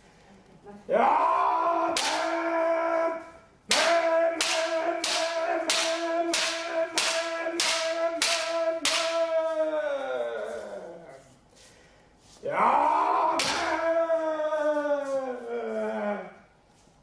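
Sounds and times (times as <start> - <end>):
long shout held at one pitch: 0.9 - 11.0
bamboo swords clacking: 1.9 - 2.5, 3.7 - 9.5, 13.4 - 13.9.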